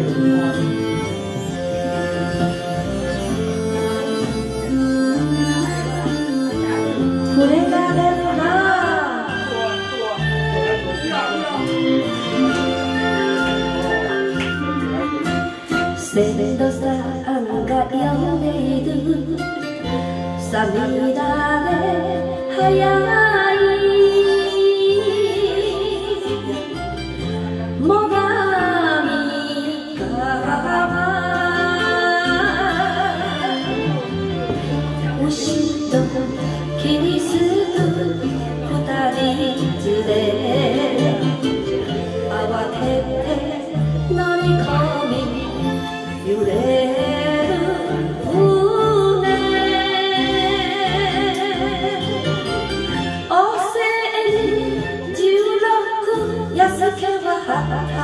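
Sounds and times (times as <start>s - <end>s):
karaoke backing track: 0.0s - 58.0s
woman singing into microphone: 4.7s - 9.4s, 14.6s - 26.8s, 27.8s - 33.9s, 35.0s - 58.0s.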